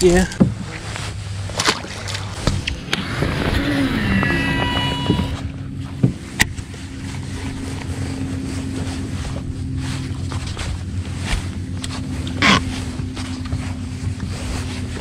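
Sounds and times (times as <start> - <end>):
water noise: 0.0 - 15.0
electric motor humming: 2.6 - 8.7.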